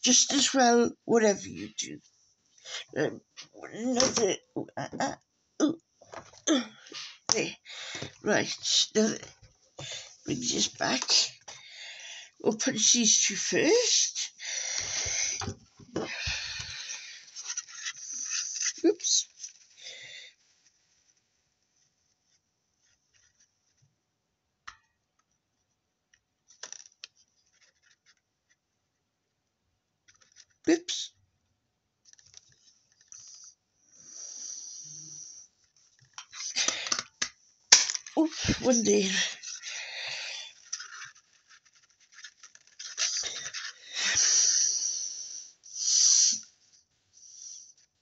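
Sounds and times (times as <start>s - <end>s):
paper rustling: 26.5s - 28.2s, 30.1s - 30.6s, 40.6s - 44.0s.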